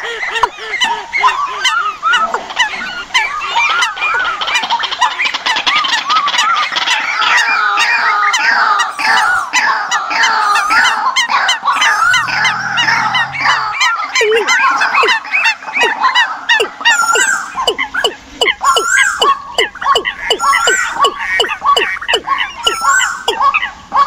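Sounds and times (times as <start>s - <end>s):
decoy bird calls: 0.0s - 24.0s.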